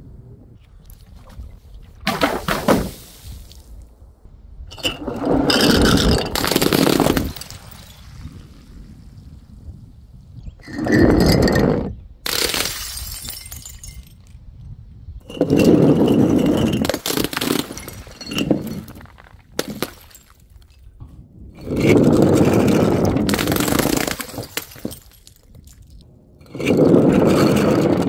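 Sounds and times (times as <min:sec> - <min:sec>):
glass bottles smashing: 0:04.7 - 0:08.0, 0:12.3 - 0:14.3, 0:15.3 - 0:20.8, 0:23.2 - 0:26.0
glass shards tinkling: 0:12.7 - 0:14.3, 0:15.2 - 0:20.9.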